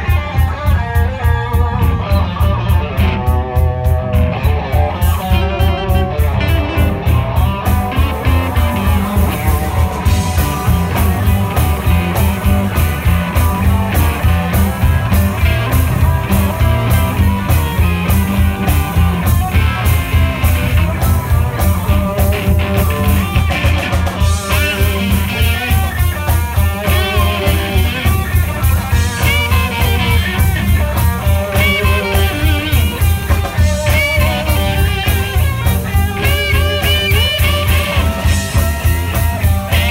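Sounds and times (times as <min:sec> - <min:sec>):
bass guitar: 0:00.0 - 0:39.9
electric guitar lead with bent notes: 0:00.0 - 0:39.9
steady drum-kit beat: 0:00.0 - 0:39.9.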